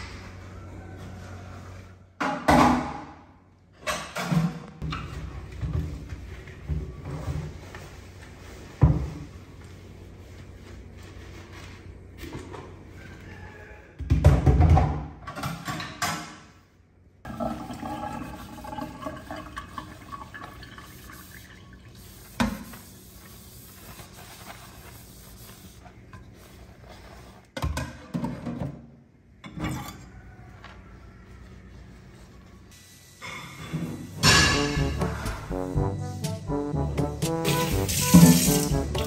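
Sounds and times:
sponge scrubbing: 0:37.5 - 0:39.0
water running and splashing: 0:37.6 - 0:39.0.

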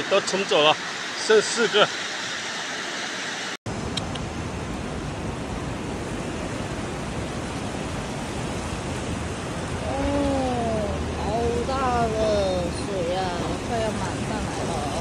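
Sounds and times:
floodwater rushing: 0:00.0 - 0:15.0
person's voice: 0:09.8 - 0:15.0.

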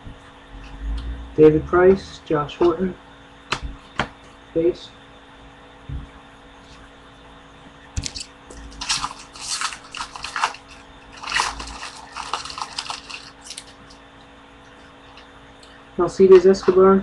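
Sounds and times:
wrapper being torn and crinkled: 0:08.0 - 0:14.0.

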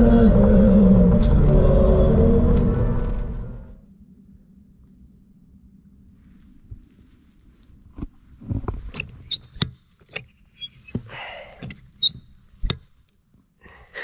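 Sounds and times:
metal lever clicks and clanks: 0:09.3 - 0:10.3, 0:11.7 - 0:12.8.

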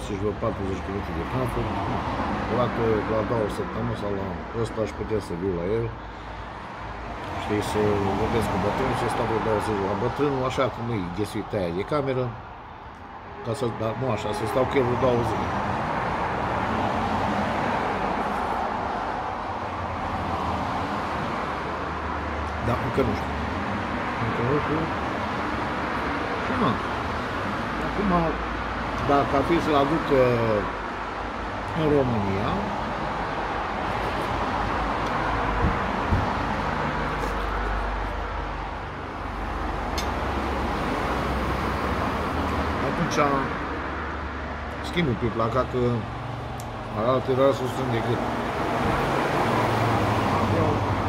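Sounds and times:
road traffic noise: 0:00.0 - 0:51.0.

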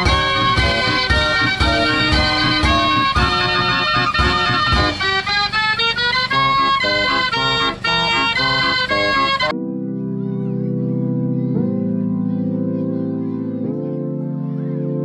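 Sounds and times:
drum beats: 0:00.0 - 0:09.5
fair organ playing lively tune: 0:00.0 - 0:15.0.

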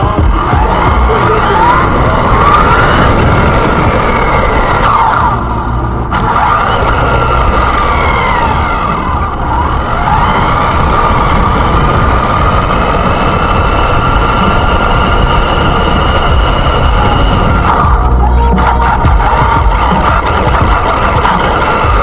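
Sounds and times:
electric motor whining: 0:00.0 - 0:22.0
tyres rumbling on road: 0:00.0 - 0:22.0.

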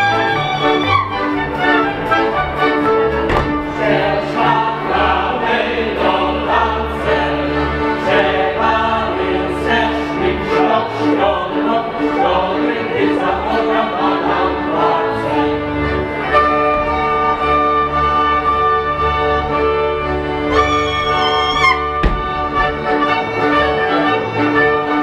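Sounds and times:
folk band playing: 0:00.0 - 0:25.0
group of voices singing: 0:01.5 - 0:16.6.

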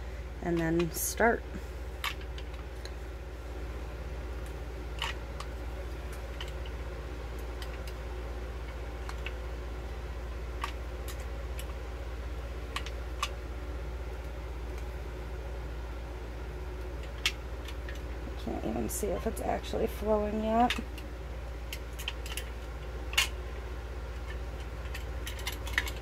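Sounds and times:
steady low hum: 0:00.0 - 0:26.0.

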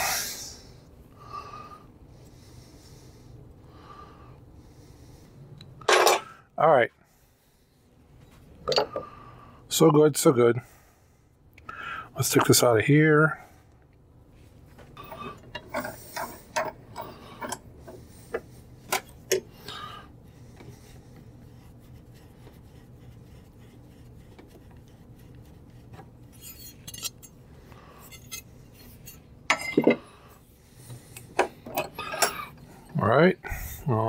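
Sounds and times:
metal clinking and scraping: 0:15.0 - 0:18.0, 0:26.3 - 0:27.4, 0:28.0 - 0:30.0.

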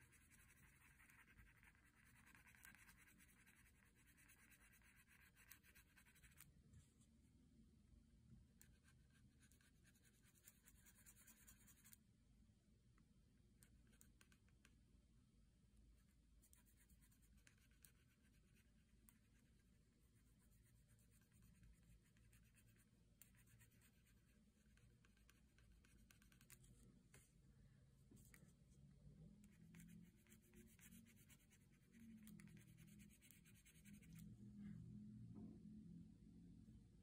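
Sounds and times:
pencil scratching on paper: 0:00.0 - 0:06.5, 0:08.6 - 0:12.0, 0:16.4 - 0:27.3, 0:29.4 - 0:34.3.

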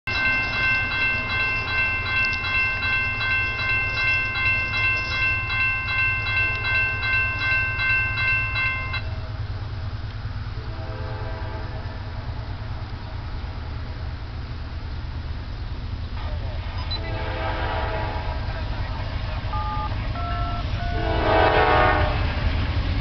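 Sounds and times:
crossing warning bell ringing: 0:00.1 - 0:10.0, 0:19.4 - 0:22.3.

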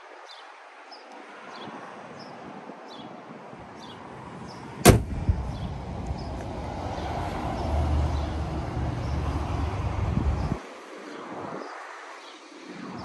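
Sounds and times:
car hood slamming shut: 0:04.8 - 0:05.7
low rumble: 0:04.9 - 0:07.0.

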